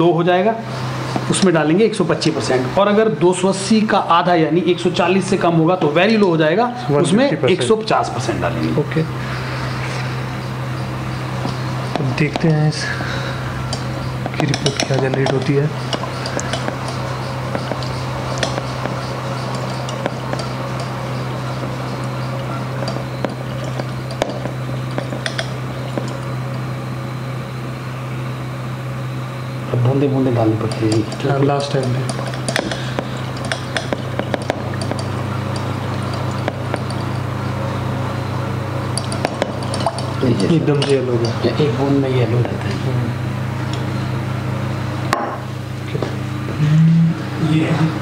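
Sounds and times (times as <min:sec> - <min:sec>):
steady low hum: 0:00.0 - 0:48.0
glass flask clinking: 0:11.4 - 0:26.6, 0:30.6 - 0:37.9, 0:38.8 - 0:41.6.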